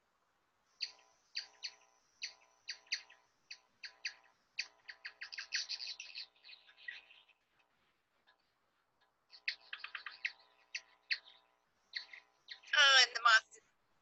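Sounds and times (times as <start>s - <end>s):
bat echolocation chirps: 0.7s - 7.6s, 9.3s - 13.4s.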